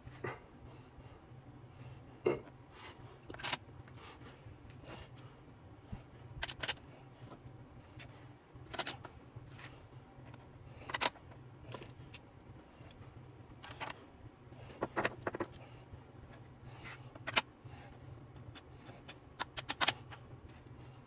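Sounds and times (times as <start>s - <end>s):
tools clicking and knocking: 18.4s - 20.0s.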